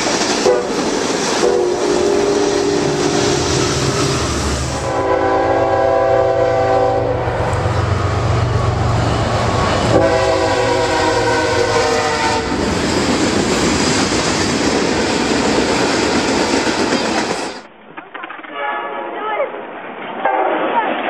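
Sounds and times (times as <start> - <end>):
diesel locomotive rumble: 0.0 - 17.7
train wheels rolling on rails: 0.0 - 18.9
train air horn blasts: 0.4 - 3.6, 4.7 - 7.5, 9.8 - 12.7, 18.5 - 19.2.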